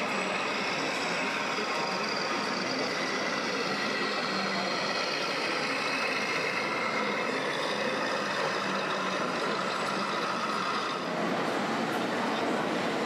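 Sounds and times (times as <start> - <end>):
diesel truck engine running: 0.0 - 13.0
hall background noise: 0.0 - 13.0.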